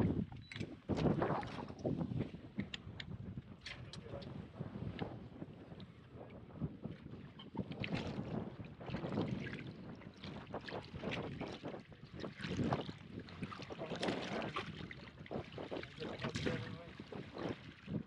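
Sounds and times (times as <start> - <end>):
water slapping a boat hull: 0.0 - 18.0
wind on microphone: 0.0 - 18.0.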